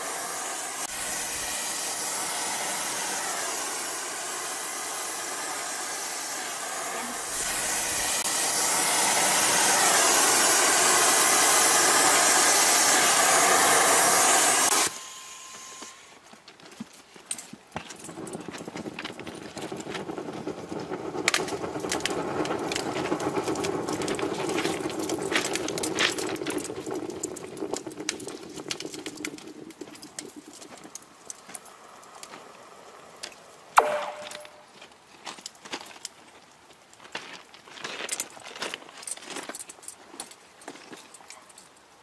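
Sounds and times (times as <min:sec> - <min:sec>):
thermite crackling hiss: 0:00.0 - 0:16.2, 0:17.8 - 0:38.3
sharp metallic clank: 0:33.8 - 0:34.7.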